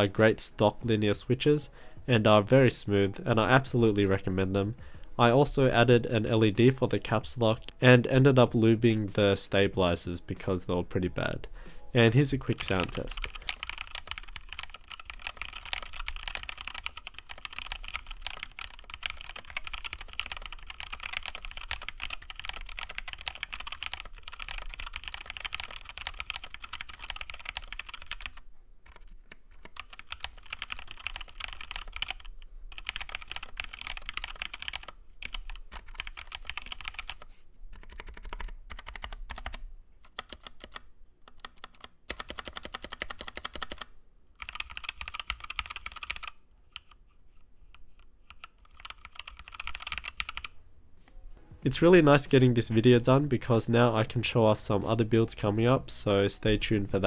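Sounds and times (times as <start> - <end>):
mechanical keyboard typing: 12.3 - 47.0, 48.0 - 50.5.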